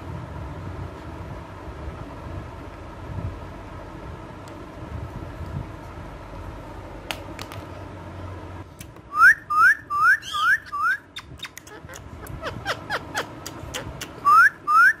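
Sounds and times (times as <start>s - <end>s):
parakeet whistled chirps: 9.1s - 15.0s.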